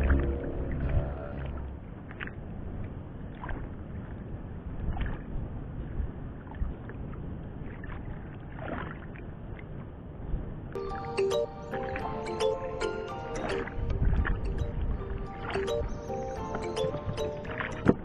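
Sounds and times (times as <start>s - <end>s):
low rumble: 0.0s - 3.1s
soft splashes: 0.0s - 10.0s
water lapping against boat hull: 0.0s - 10.0s, 13.4s - 18.0s.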